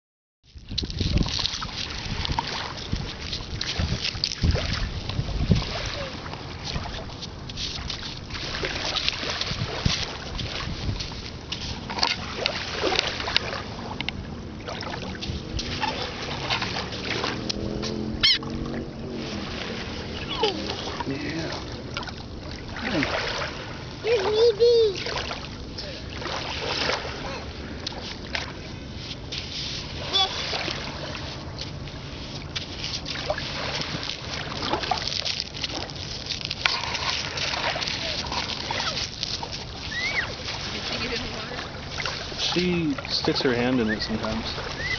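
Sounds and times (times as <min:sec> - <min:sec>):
lake waves lapping on shore: 0:00.5 - 0:44.9
wind buffeting microphone: 0:00.6 - 0:27.9.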